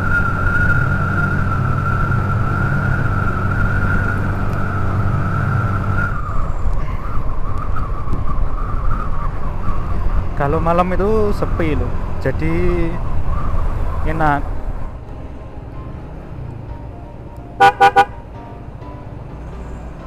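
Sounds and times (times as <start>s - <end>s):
road and wind rush: 0.0s - 20.0s.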